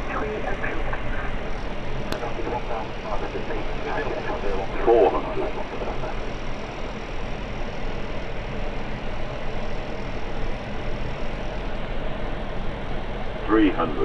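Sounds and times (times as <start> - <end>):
low hum: 0.0 - 8.7
airflow and engine noise: 0.0 - 14.0.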